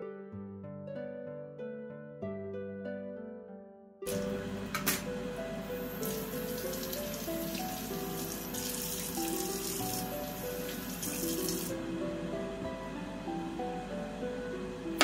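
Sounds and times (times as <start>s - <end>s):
background music: 0.0s - 15.0s
tap water running into sink: 5.9s - 11.7s.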